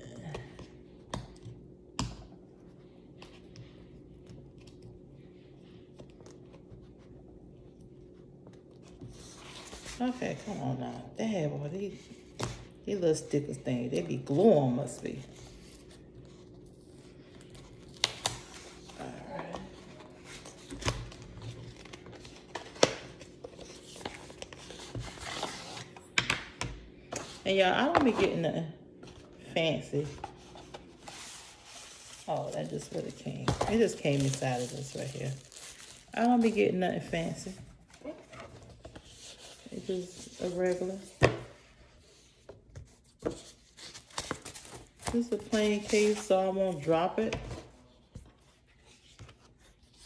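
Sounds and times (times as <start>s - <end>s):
packaging rustling and tearing: 30.4s - 36.7s.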